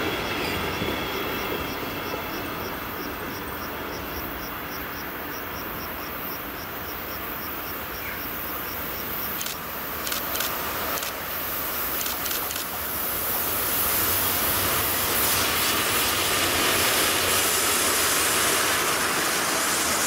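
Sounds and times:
train rumbling: 0.0s - 20.0s
insect chirps: 0.1s - 16.1s
sharp clicks: 9.3s - 11.2s, 12.0s - 12.8s.

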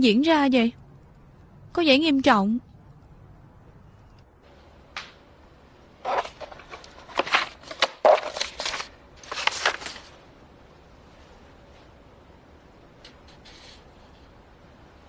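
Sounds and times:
paper rustling: 6.0s - 10.2s, 13.2s - 14.3s.

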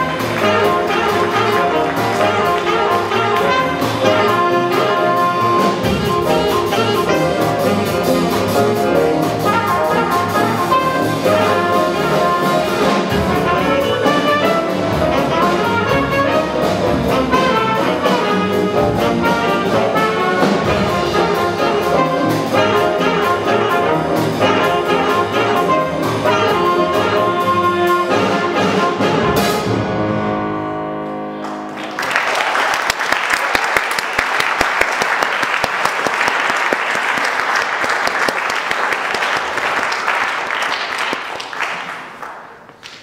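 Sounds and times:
audience applauding: 0.0s - 4.0s, 31.4s - 43.0s
jazz combo playing: 0.0s - 31.8s.

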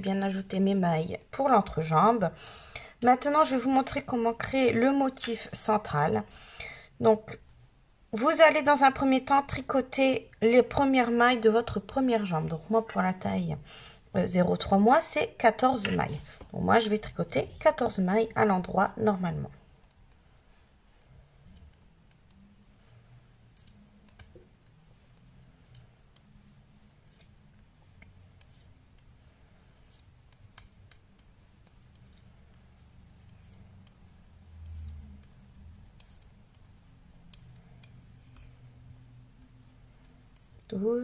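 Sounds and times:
low steady hum: 0.0s - 41.0s
knitting needles clicking: 21.0s - 22.6s, 23.4s - 40.8s.

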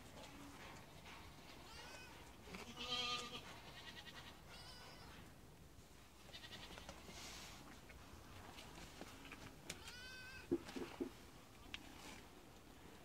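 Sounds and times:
goat kid bleating loudly: 1.6s - 5.2s, 6.3s - 6.8s, 9.7s - 10.5s.

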